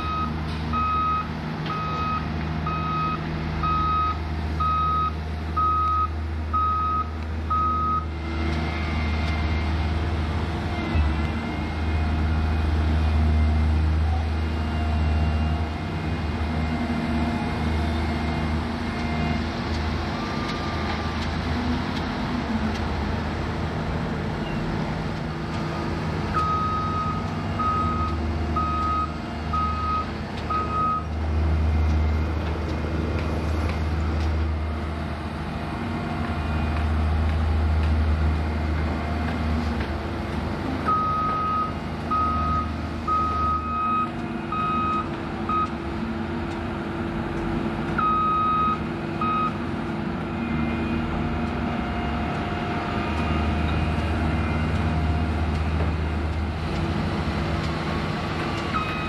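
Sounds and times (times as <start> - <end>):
reversing alarm beeps: 0.0 - 8.1, 26.4 - 31.1, 40.9 - 45.7, 48.0 - 49.6, 58.8 - 59.0
heavy machinery diesel engine rumbling: 0.0 - 59.0.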